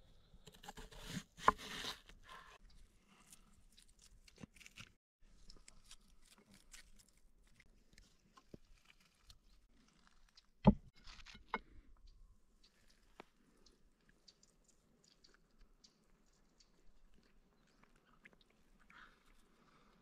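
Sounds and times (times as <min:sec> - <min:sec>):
crunching and crackling handling: 0:03.1 - 0:11.5.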